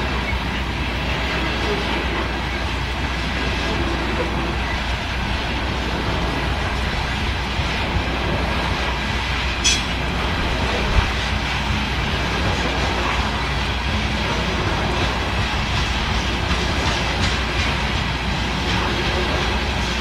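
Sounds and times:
distant train wheels rumbling: 0.0 - 20.0.

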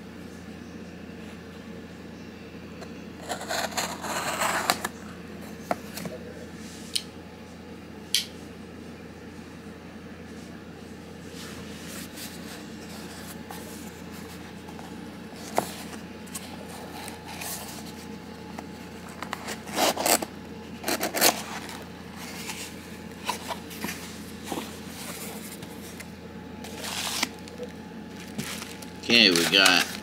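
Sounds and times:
cardboard scraping and rustling: 3.2 - 6.2, 11.3 - 30.0
cardboard ripping: 26.7 - 27.6.

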